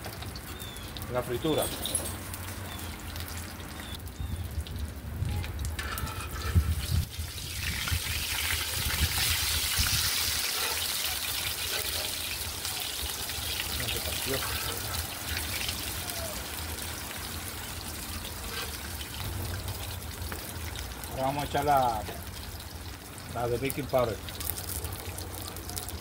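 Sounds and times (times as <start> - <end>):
oil sizzling in a frying pan: 5.8 - 26.0.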